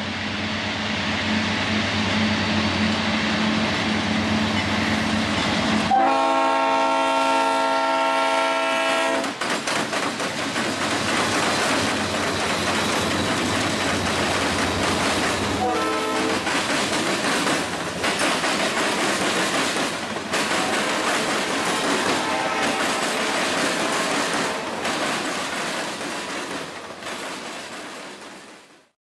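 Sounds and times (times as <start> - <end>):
freight train passing: 0.0 - 28.9
steel wheels clattering on rails: 9.0 - 28.7.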